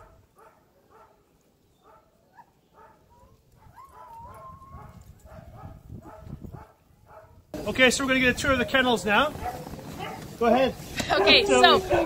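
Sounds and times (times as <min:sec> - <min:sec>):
dogs whining and yipping: 0:02.4 - 0:06.7, 0:11.1 - 0:12.0.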